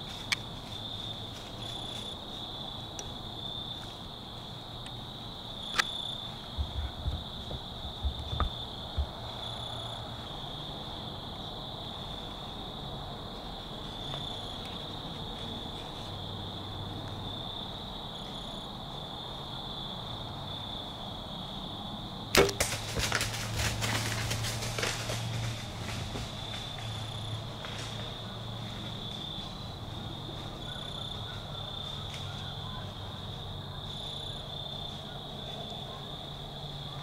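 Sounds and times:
insects trilling: 0:00.0 - 0:37.0
bow shot snap: 0:22.4 - 0:22.9
arrow striking deer: 0:22.4 - 0:23.4
deer running through dry leaves: 0:22.4 - 0:32.8.

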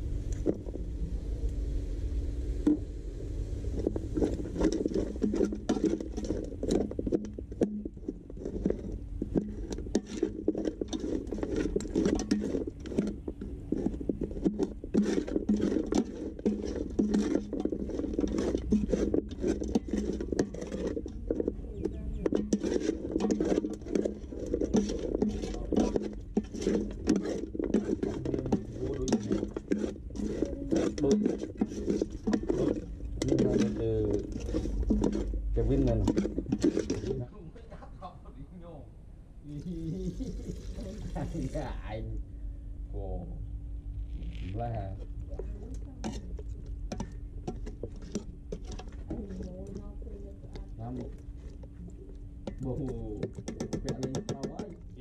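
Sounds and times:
metal spoon scraping a pot: 0:03.8 - 0:37.3, 0:44.7 - 0:55.0.

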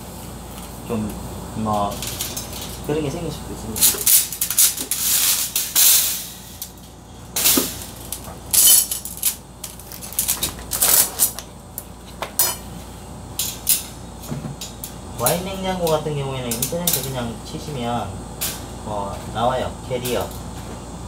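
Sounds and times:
clinks and rattles of handling: 0:07.4 - 0:11.5.

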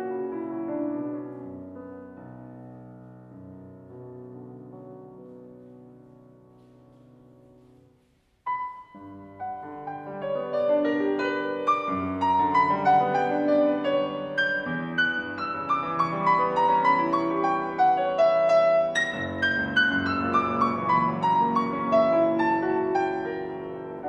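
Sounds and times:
classical piano piece: 0:00.0 - 0:24.0.

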